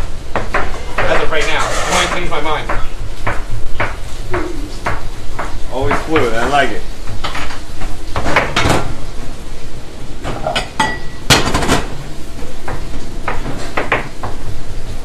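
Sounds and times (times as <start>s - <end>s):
plates clattering on steel counter: 8.2s - 9.0s, 10.2s - 12.0s.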